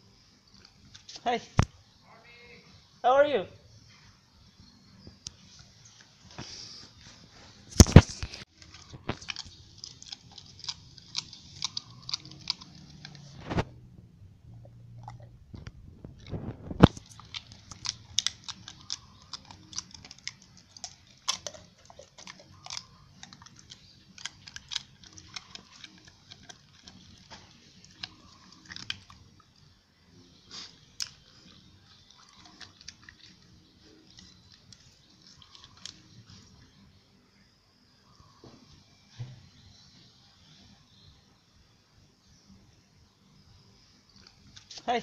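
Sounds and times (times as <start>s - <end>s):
dog chewing and gnawing: 8.5s - 13.7s, 14.5s - 29.6s, 30.8s - 36.6s.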